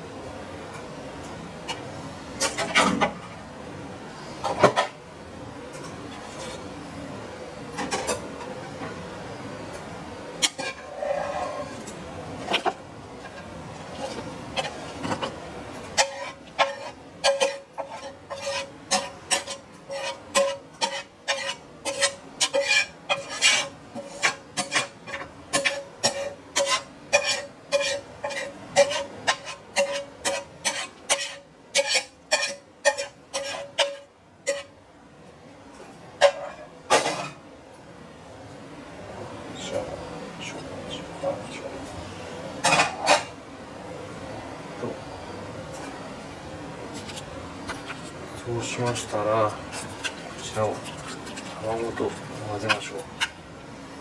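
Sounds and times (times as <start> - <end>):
utensil scraping and knocking: 49.7 - 53.3.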